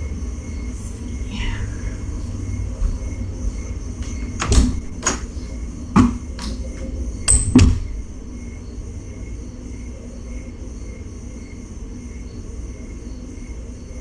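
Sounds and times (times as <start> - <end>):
steady low hum: 0.0 - 14.0
door knocks and thuds: 4.4 - 5.2, 7.2 - 8.1.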